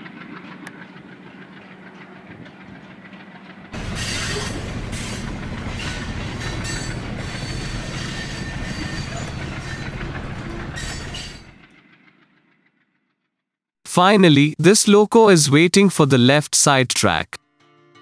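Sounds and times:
train wheels clattering on rails: 0.0 - 11.9
diesel locomotive humming: 0.0 - 12.2.

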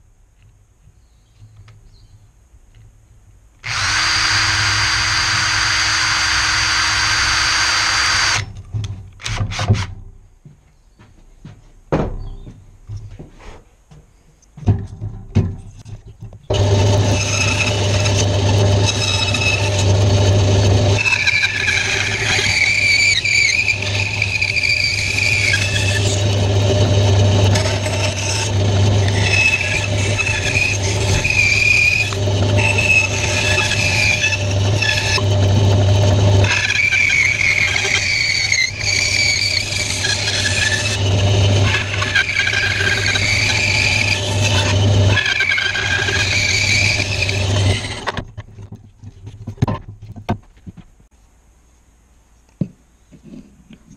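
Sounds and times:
bandsaw cutting wood: 3.6 - 8.4, 16.5 - 48.2
knocks: 11.5 - 16.0.

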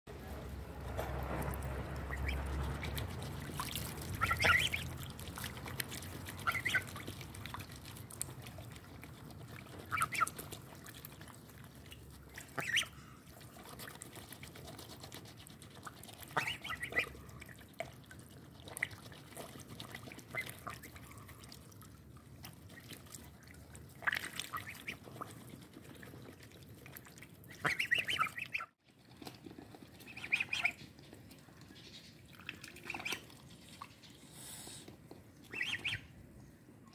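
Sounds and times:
geese bills clicking and dabbling: 0.1 - 36.9
geese calling: 1.8 - 3.0, 4.0 - 5.0, 6.3 - 7.0, 35.5 - 36.1.

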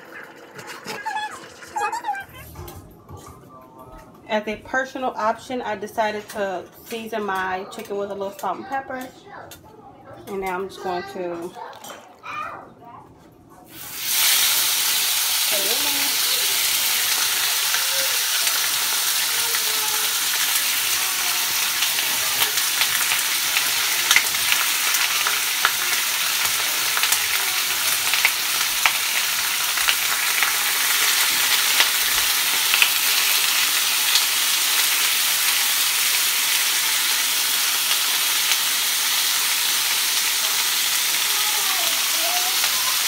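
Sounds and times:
chicken frying in oil: 0.0 - 2.4, 13.7 - 43.0.

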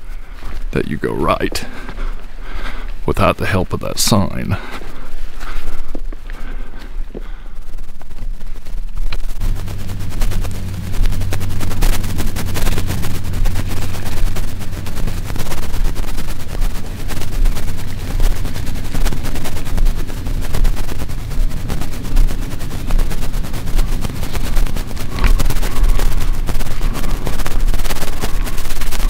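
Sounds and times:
wind buffeting microphone: 9.2 - 29.0.

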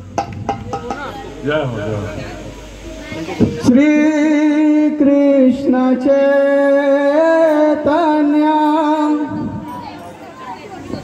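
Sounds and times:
man singing through a microphone: 3.4 - 9.8.

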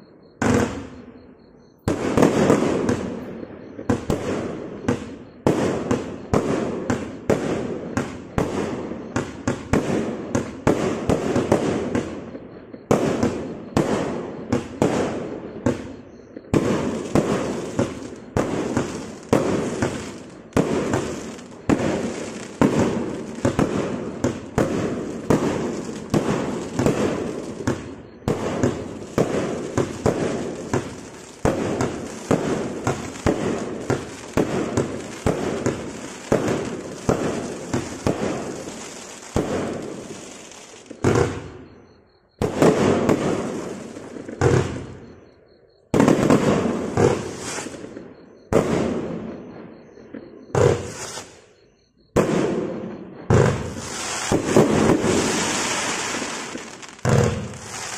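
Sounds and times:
firework crackle: 12.8 - 41.6, 42.4 - 45.0, 46.0 - 48.0, 50.6 - 51.5, 53.3 - 57.9
firework launch bangs: 53.3 - 57.9.

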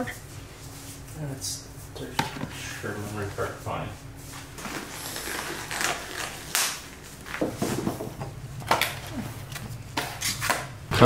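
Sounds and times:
plastic gloves rustling: 1.8 - 10.5.

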